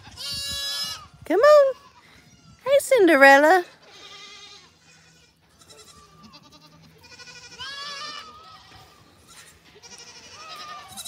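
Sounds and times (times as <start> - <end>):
goats bleating: 3.8 - 11.0.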